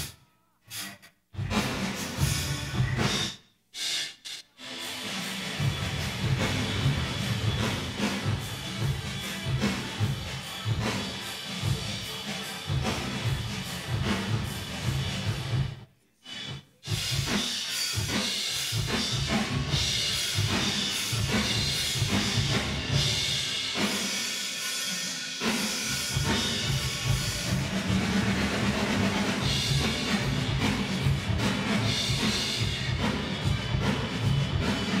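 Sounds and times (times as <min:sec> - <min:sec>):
drum kit with reverb: 0:00.0 - 0:35.0.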